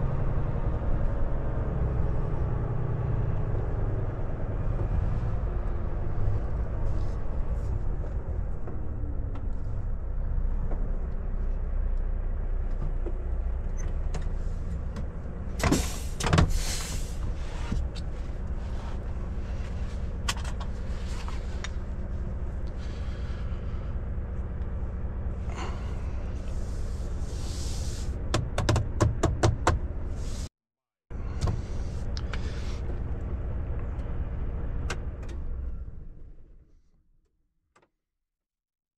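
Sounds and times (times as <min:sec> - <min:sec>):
diesel truck engine running: 0:00.0 - 0:30.5, 0:31.1 - 0:36.6
sharp clicks and knocks: 0:28.3 - 0:29.8.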